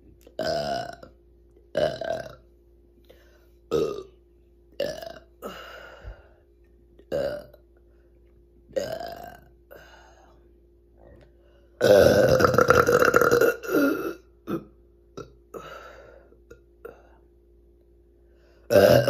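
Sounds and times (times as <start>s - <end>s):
woman burping: 0.3s - 1.1s, 1.7s - 2.4s, 3.7s - 4.1s, 4.8s - 5.6s, 7.1s - 7.6s, 8.8s - 9.8s, 11.8s - 15.7s, 18.7s - 19.0s.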